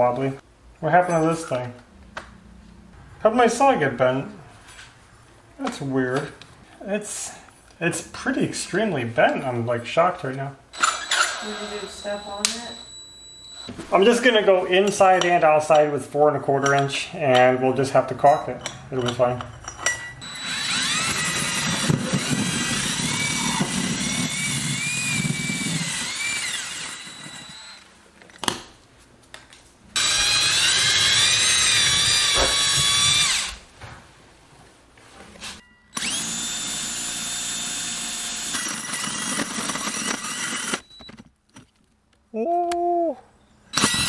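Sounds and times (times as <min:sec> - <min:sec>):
power drill whining: 0:10.7 - 0:13.7, 0:20.2 - 0:27.9, 0:30.0 - 0:33.6, 0:35.9 - 0:41.0, 0:43.7 - 0:44.0.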